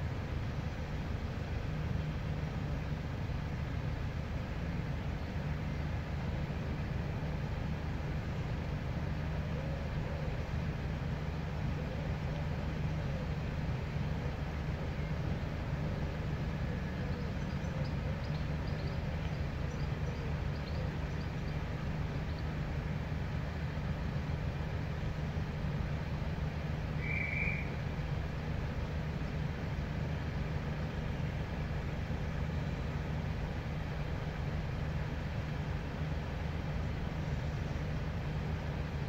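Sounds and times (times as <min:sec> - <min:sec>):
short high whistle: 0:27.0 - 0:27.7.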